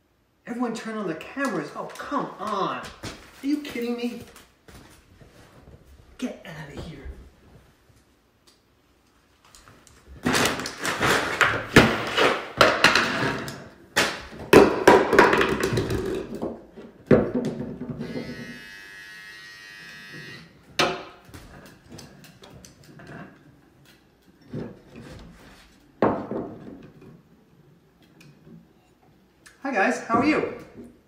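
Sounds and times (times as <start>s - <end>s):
plastic snack bags rustling: 10.2s - 11.8s
objects knocking on wooden table: 26.0s - 26.8s.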